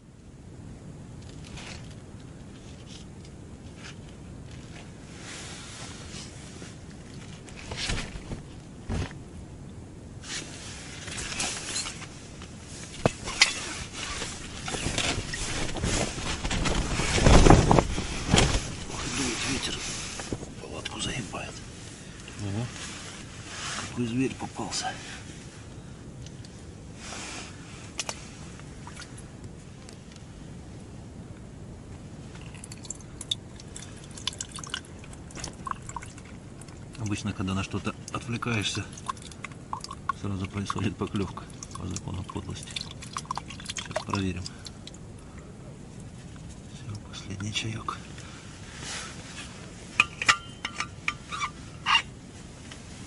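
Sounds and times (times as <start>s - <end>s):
low steady background noise: 0.0s - 53.0s
clothing and tent fabric rustling: 1.4s - 9.3s, 10.2s - 30.5s, 47.6s - 53.0s
tea pouring into metal cup: 38.0s - 44.8s.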